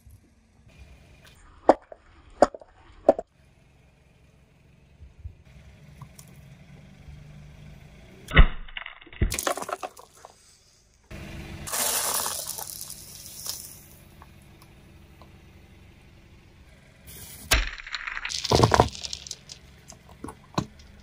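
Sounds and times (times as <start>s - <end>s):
tyre crushing brittle objects: 8.4s - 10.3s, 11.7s - 13.9s, 17.5s - 21.0s.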